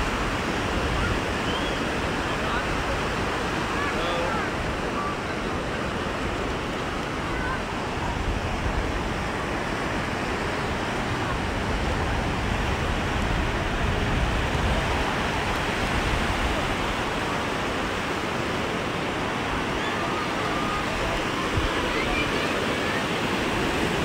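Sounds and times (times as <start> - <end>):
surf washing: 0.0 - 24.0
people talking: 0.7 - 6.4, 7.0 - 8.3, 19.5 - 24.0.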